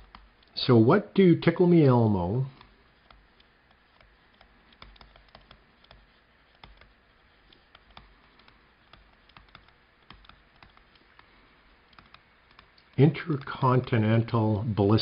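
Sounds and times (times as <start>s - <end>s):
stylus tapping on tablet: 2.6s - 13.9s.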